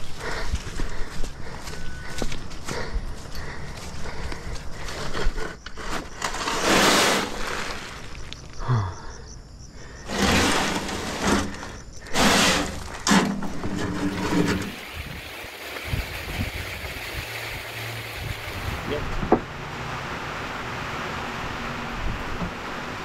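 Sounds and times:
wheelbarrow rattling: 4.7 - 8.3, 10.0 - 18.6.

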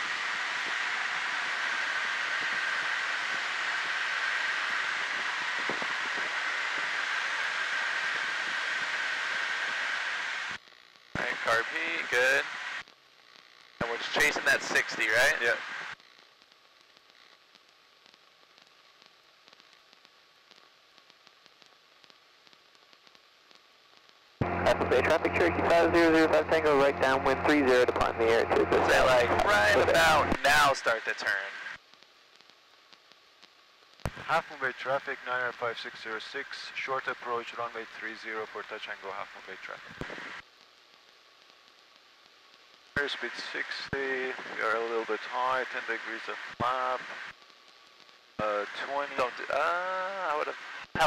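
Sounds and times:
intercom hiss: 11.2 - 12.8, 13.8 - 16.0, 24.4 - 31.8, 34.1 - 40.4, 43.0 - 47.3, 48.4 - 51.0
tiny crackles: 12.8 - 24.4, 30.8 - 49.6
small aircraft cabin noise: 13.8 - 15.9, 24.4 - 31.8.

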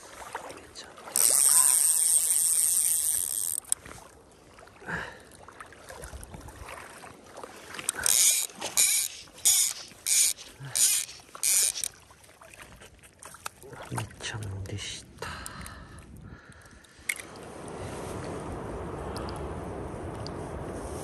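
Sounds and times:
fly reel ratchet buzzing: 1.2 - 3.8, 8.0 - 11.9.

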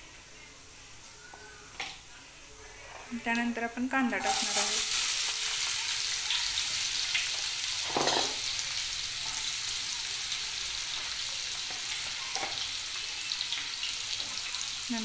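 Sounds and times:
onion sizzling in hot oil: 3.2 - 15.0.

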